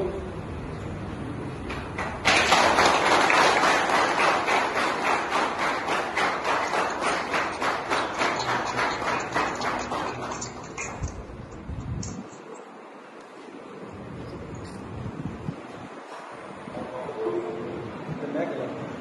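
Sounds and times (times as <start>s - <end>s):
people applauding: 1.7s - 11.3s.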